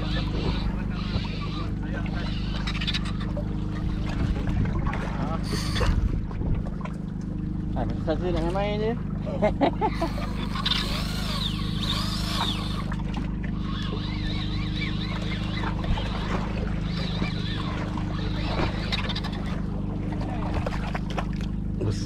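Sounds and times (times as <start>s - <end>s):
boat engine running: 0.0s - 22.0s
high rising and falling calls: 9.9s - 12.9s.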